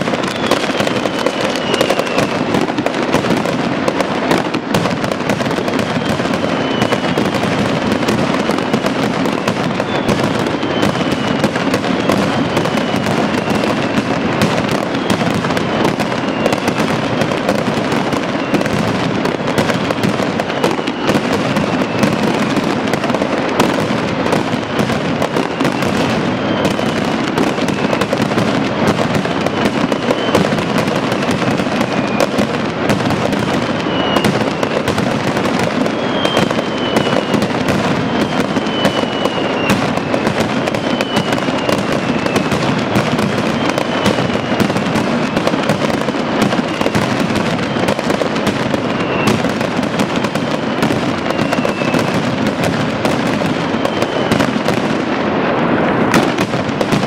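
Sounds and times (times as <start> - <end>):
firecrackers bursting: 0.0 - 57.0
thin falling whistles: 0.2 - 2.2, 33.9 - 34.3, 35.9 - 37.4, 38.1 - 40.2, 40.8 - 42.4, 51.3 - 52.0.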